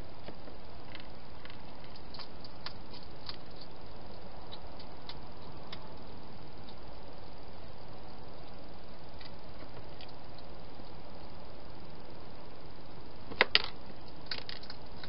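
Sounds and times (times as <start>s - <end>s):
steady hiss: 0.0s - 15.0s
hedgehog crunching food: 0.9s - 6.0s.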